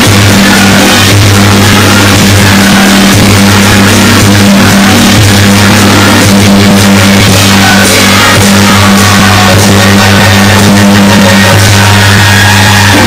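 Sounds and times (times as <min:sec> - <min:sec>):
loud distorted music: 0:00.0 - 0:13.0.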